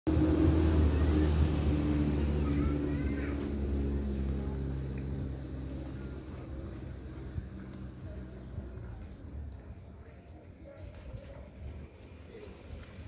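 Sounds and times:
ferry engine humming: 0.1 - 9.7.

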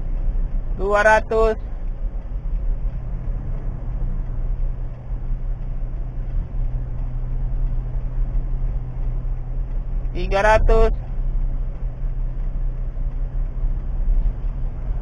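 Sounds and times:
car engine and road noise: 0.0 - 15.0.

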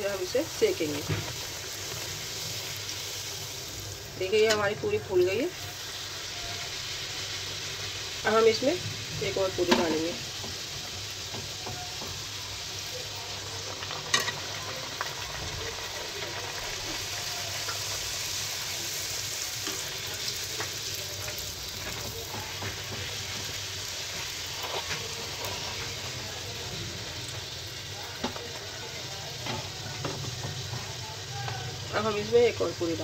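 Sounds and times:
deep-frying sizzle in oil: 0.0 - 33.0.

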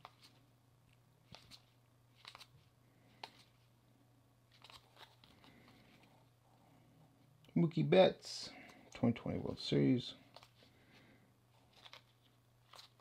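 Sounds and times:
low steady hum: 0.0 - 13.0
cards flicking and sliding: 1.2 - 3.5, 11.7 - 13.0.

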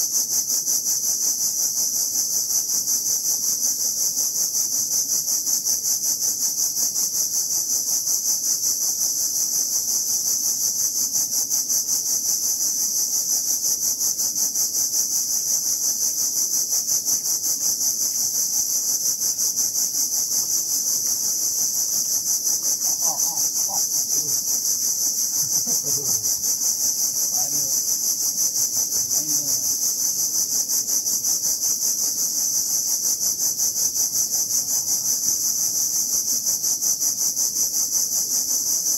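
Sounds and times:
cicadas droning: 0.0 - 38.9.

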